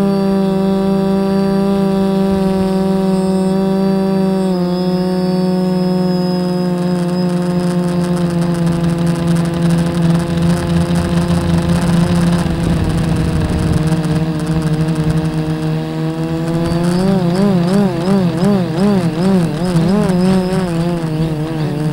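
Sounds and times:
drone propellers whining: 0.0s - 21.9s
wind buffeting microphone: 1.6s - 3.8s, 8.2s - 21.9s.

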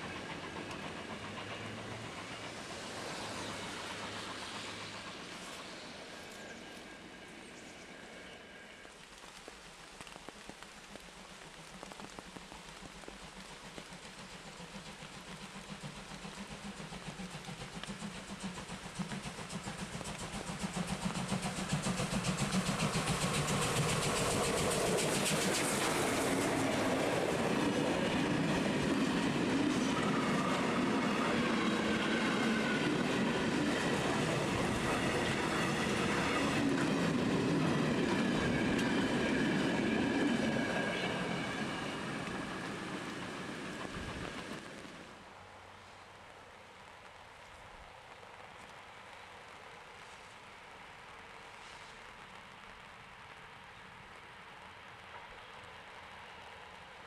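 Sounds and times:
steam locomotive exhaust beat: 0.0s - 7.4s, 9.1s - 45.1s.

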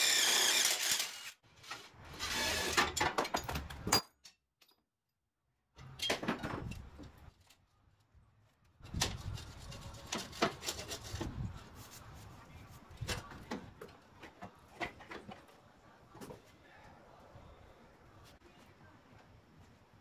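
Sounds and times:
metal knocks and scrapes: 8.8s - 11.6s.

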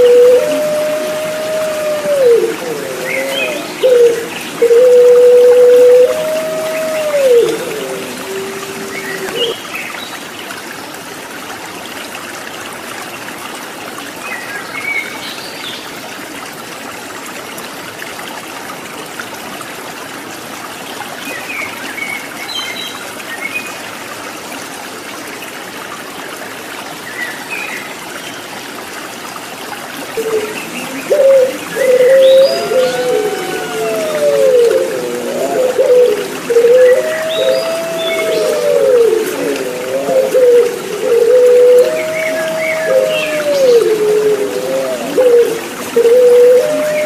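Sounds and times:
dove cooing: 0.0s - 9.6s, 30.2s - 47.0s
trickling water: 0.0s - 47.0s.

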